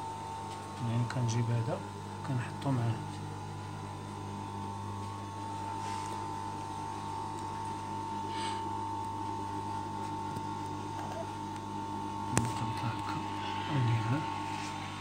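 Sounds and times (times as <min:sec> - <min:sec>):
electric hum with high whine: 0:00.0 - 0:15.0.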